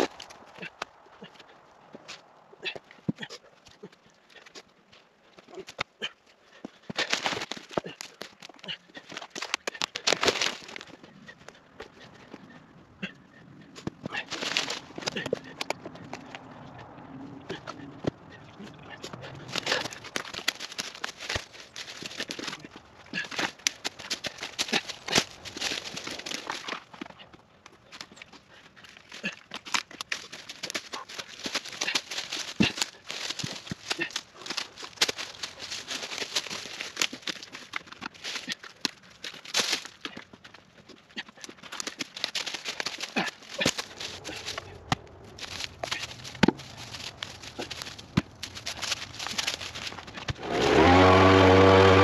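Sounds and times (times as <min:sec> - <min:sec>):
footsteps through dry leaves: 0:14.1 - 0:15.2, 0:19.4 - 0:26.9, 0:29.6 - 0:40.9, 0:41.6 - 0:52.0
knocks of logs handled: 0:29.0 - 0:40.3, 0:41.4 - 0:52.0.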